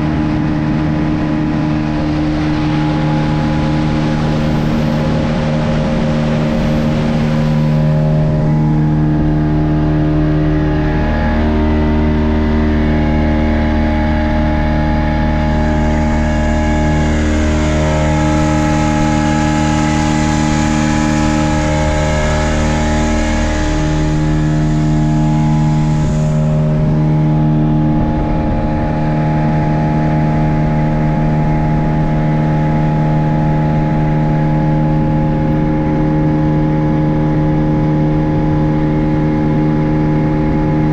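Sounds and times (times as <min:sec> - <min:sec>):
speedboat engine running: 0:00.0 - 0:40.9
hissing rush: 0:15.4 - 0:34.3.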